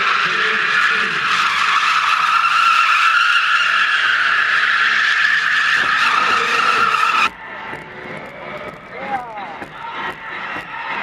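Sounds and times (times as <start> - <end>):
tyres squealing on concrete: 0.0 - 7.4.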